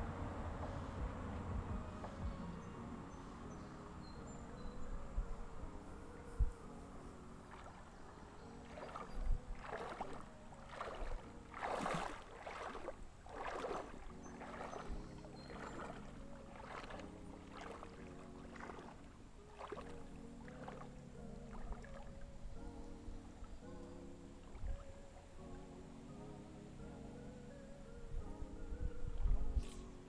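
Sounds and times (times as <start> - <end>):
soft background music: 0.0 - 30.0
legs wading through water: 7.2 - 23.4.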